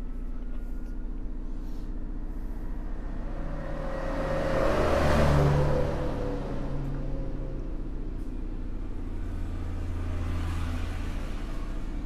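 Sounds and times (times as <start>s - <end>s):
low electrical hum: 0.0s - 9.4s.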